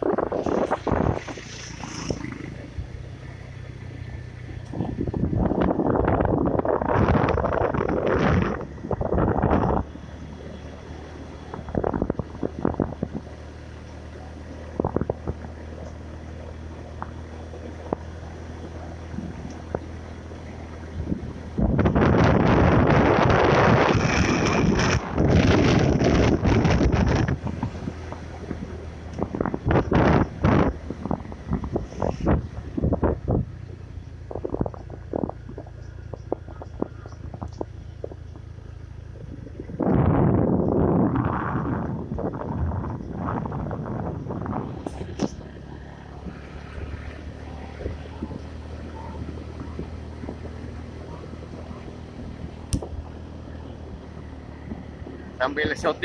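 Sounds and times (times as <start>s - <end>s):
wind buffeting microphone: 0.0s - 13.7s, 14.4s - 56.0s
knocks and rattles from road: 0.0s - 56.0s
vehicle engine running: 0.0s - 56.0s.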